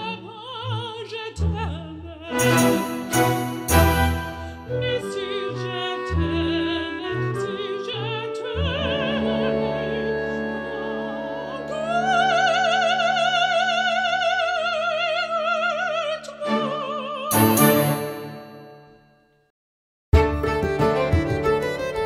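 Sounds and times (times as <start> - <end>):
operatic soprano singing: 0.0 - 18.4
sustained instrumental accompaniment: 2.3 - 5.4, 17.3 - 18.9, 20.2 - 22.0.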